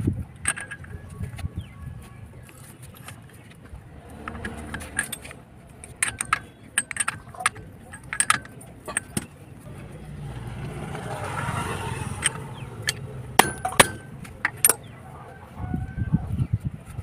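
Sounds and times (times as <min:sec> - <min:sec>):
metal clinks of socket on nut: 0:00.4 - 0:01.0, 0:04.2 - 0:09.4, 0:12.2 - 0:14.9.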